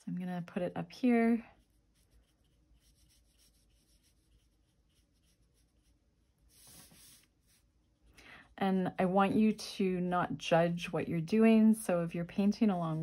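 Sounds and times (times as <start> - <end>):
brush dabbing paint on paper: 0.8 - 8.1, 12.0 - 13.0.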